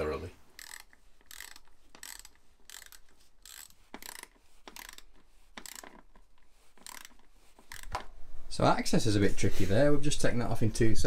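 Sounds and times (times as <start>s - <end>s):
ratchet wrench clicking: 0.5s - 6.2s, 6.8s - 8.0s.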